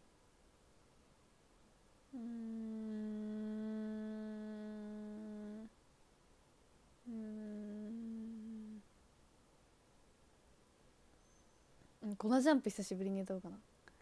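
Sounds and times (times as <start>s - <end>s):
woman humming: 2.1s - 5.7s, 7.0s - 8.9s.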